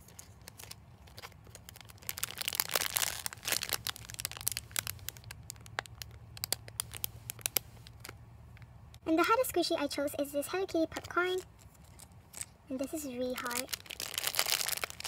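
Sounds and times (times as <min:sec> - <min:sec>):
plastic bag crinkling: 0:00.0 - 0:08.2, 0:11.3 - 0:15.0.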